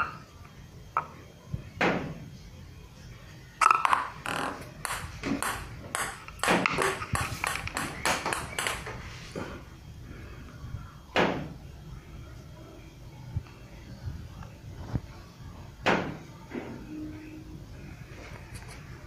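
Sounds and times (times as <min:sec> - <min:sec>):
table tennis ball bouncing on wood: 0:03.6 - 0:09.0.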